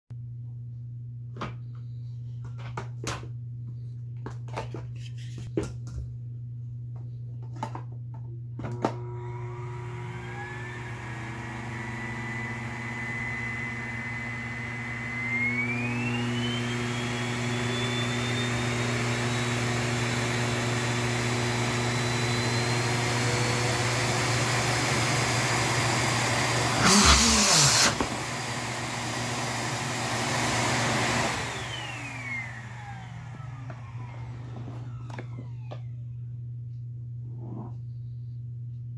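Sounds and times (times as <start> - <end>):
vacuum cleaner motor whining: 8.6 - 36.2.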